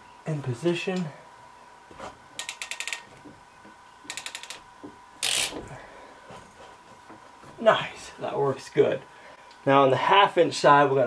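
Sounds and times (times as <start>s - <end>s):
clamp tool ratcheting clicks: 2.4s - 3.1s, 4.1s - 4.6s, 5.2s - 5.6s.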